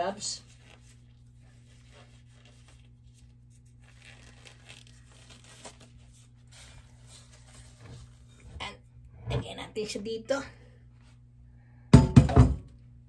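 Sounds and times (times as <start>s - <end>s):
gloves crinkling and rustling: 0.0s - 8.7s.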